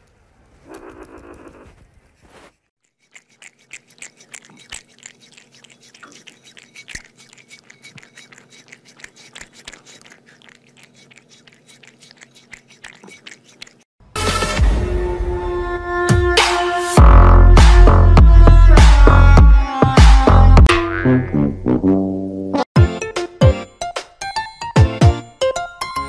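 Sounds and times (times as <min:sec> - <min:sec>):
kitten suckling from bottle: 0:02.8 - 0:13.9.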